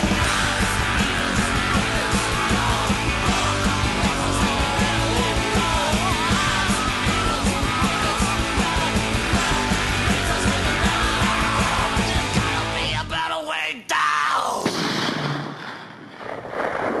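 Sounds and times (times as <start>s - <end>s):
steady drum beat: 0.0s - 12.9s
rock band playing: 0.0s - 13.2s.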